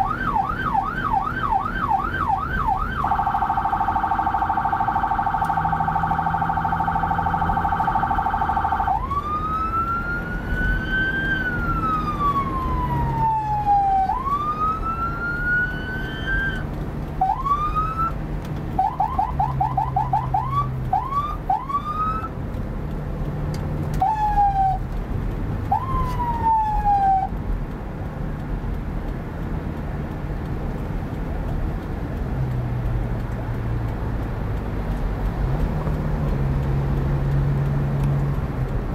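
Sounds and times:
electronic emergency siren: 0.0 - 18.2, 18.8 - 22.3, 24.0 - 24.8, 25.7 - 27.3
car engine and road noise: 0.0 - 38.9.

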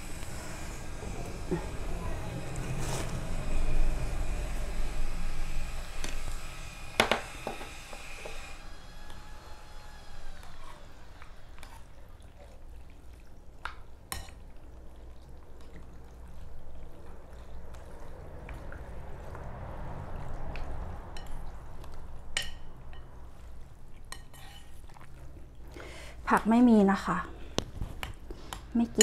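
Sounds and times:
utensils stirring noodles in broth: 21.2 - 24.9.

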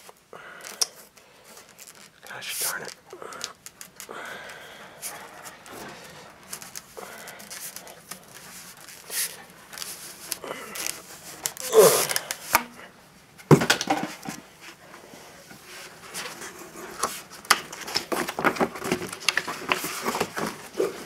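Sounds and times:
paper scraping in cardboard tube: 5.0 - 12.3.

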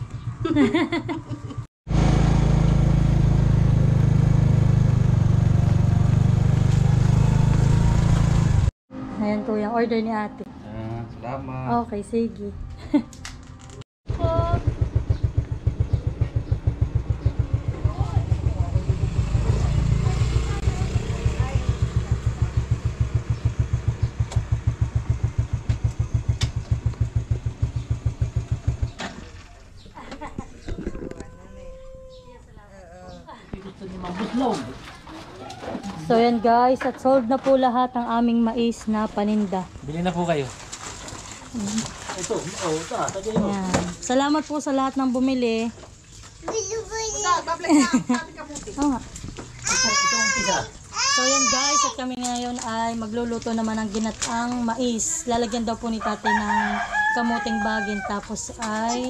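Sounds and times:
small motorcycle engine running: 1.9 - 8.7, 14.1 - 29.4.

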